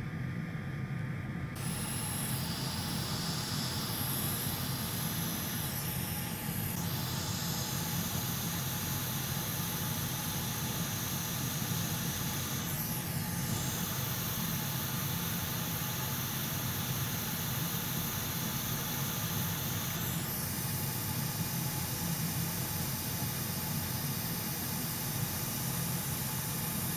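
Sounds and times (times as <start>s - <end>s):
hot air station hissing: 1.6s - 26.9s.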